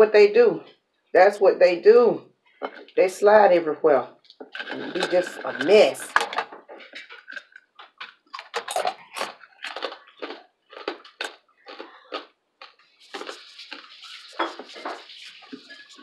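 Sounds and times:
crisp bacon crunching: 4.2 - 16.0.

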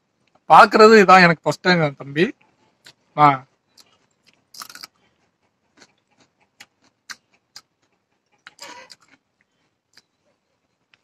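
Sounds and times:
person chewing cucumber: 2.4 - 11.0.

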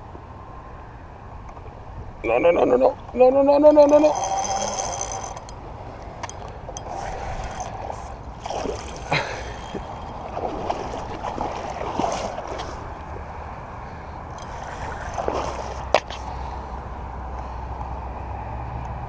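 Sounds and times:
seawater sloshing and trickling: 3.9 - 17.0.

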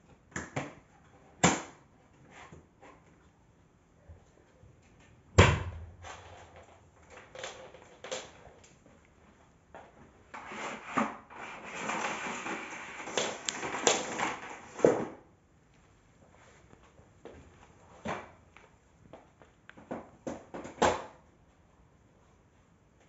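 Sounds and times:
vacuum cleaner rolling and rattling: 10.3 - 15.2.

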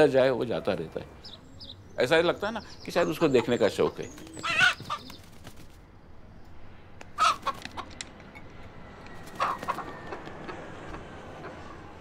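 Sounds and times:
rooster beating its wings: 4.1 - 5.8, 9.2 - 10.0
chicken clucks: 9.4 - 11.9.

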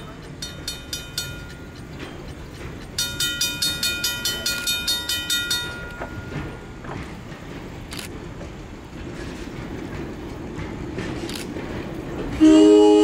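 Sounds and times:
train rumbling: 0.0 - 13.0
bell ringing rapidly: 3.0 - 6.6.

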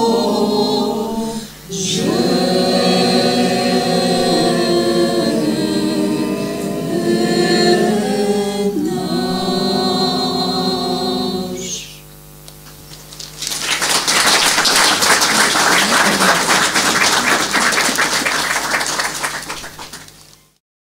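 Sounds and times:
women's choir singing: 0.0 - 11.9
audience applause: 12.9 - 20.4.

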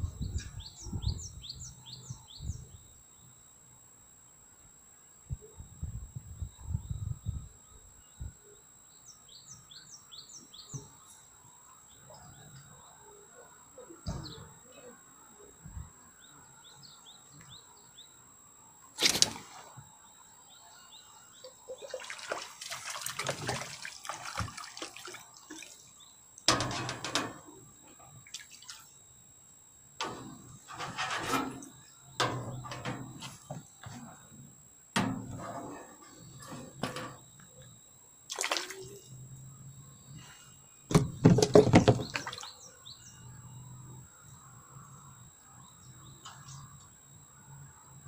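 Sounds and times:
water splashing on pond: 21.8 - 25.9, 28.3 - 28.9, 38.3 - 39.0, 41.3 - 42.6.

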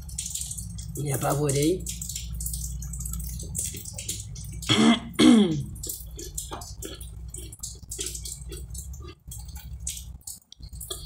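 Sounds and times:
woman clearing her throat: 4.7 - 5.7.

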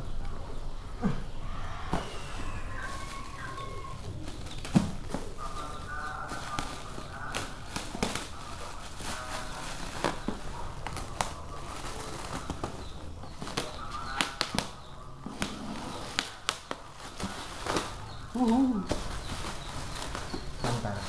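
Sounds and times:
plastic crinkling and rustling: 1.5 - 21.0.

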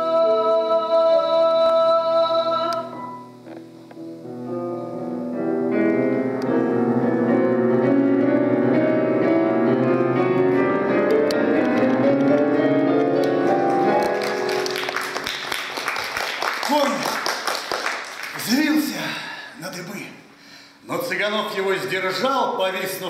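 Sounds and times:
jazz piano improvisation: 2.8 - 15.2.

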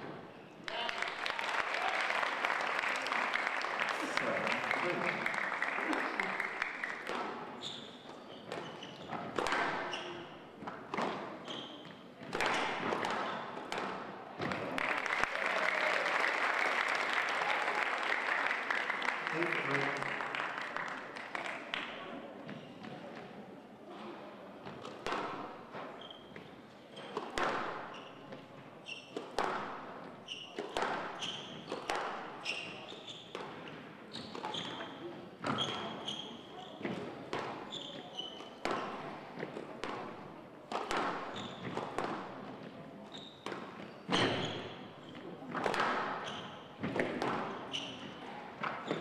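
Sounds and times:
applause: 0.7 - 7.2, 14.5 - 22.0
shoes squeaking on wooden floor: 7.6 - 9.3, 11.4 - 11.9, 37.7 - 38.6, 43.1 - 45.3
squash ball cracking off rackets: 40.7 - 42.4.

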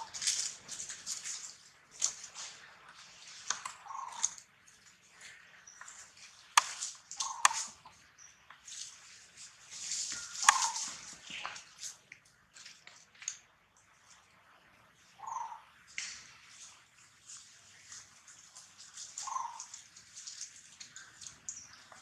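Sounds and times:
rustling dry leaves: 0.0 - 22.0
monkeys squeaky calls: 7.2 - 7.7, 10.4 - 11.0, 19.2 - 19.8.

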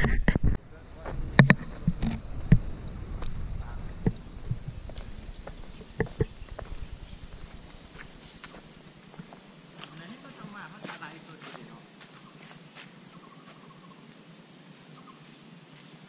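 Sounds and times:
high-pitched insect drone: 0.2 - 16.0.

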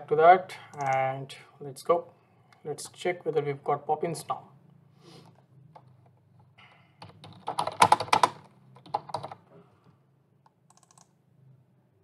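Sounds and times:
typing on computer keyboard: 7.0 - 9.4, 10.7 - 11.1.

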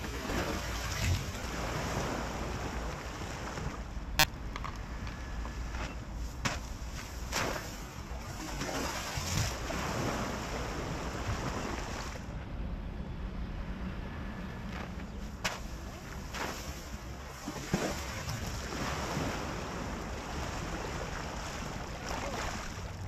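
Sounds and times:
water noise: 0.0 - 12.6, 13.6 - 23.0
wind: 0.0 - 23.0
wakeboard spray hissing and splashing: 6.2 - 11.2.

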